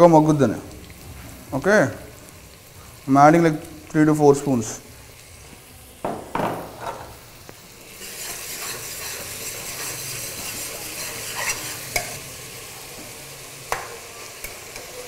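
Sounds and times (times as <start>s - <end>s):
onions sizzling in hot oil: 0.0s - 15.0s
spoon scraping pan: 8.0s - 12.2s.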